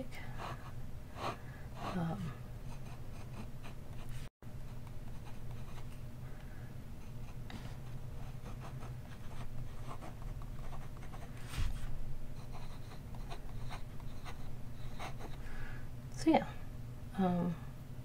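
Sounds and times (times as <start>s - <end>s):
pen nib scratching on paper: 12.4s - 15.4s.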